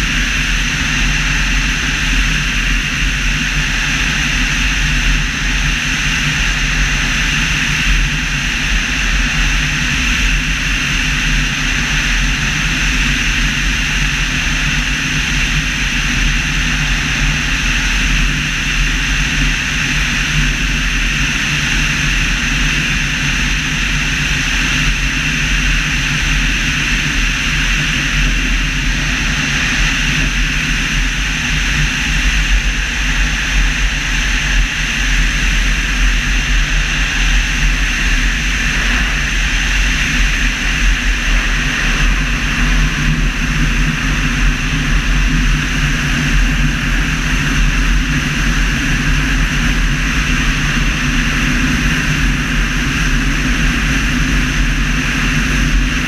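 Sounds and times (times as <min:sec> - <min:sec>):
air rushing over camera: 0:35.6 - 0:44.9.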